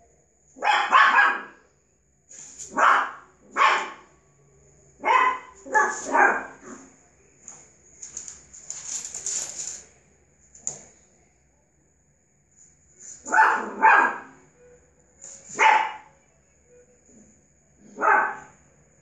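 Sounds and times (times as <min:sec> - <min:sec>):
puppy barking: 0:00.6 - 0:01.6, 0:02.6 - 0:04.1, 0:05.0 - 0:07.0, 0:13.2 - 0:14.4, 0:15.5 - 0:16.1, 0:17.8 - 0:18.6
rustling: 0:07.4 - 0:10.0.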